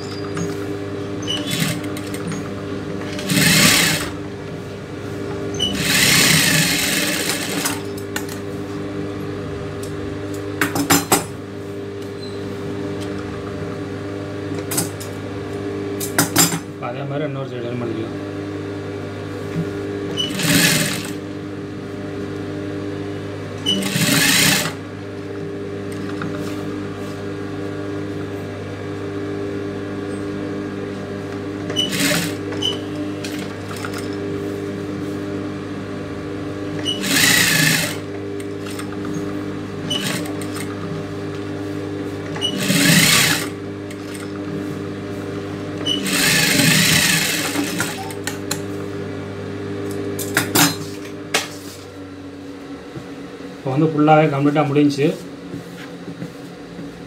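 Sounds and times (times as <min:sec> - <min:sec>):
sewing machine stitching: 0:01.3 - 0:04.2, 0:05.6 - 0:07.9, 0:20.2 - 0:21.2, 0:23.7 - 0:24.8, 0:31.7 - 0:34.1, 0:36.8 - 0:39.0, 0:39.8 - 0:40.7, 0:42.3 - 0:44.3, 0:45.8 - 0:48.3.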